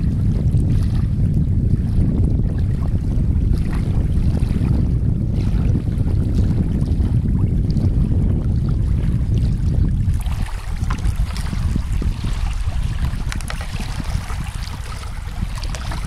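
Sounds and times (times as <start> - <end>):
wind buffeting microphone: 0.0 - 16.0
small waves lapping: 8.6 - 16.0.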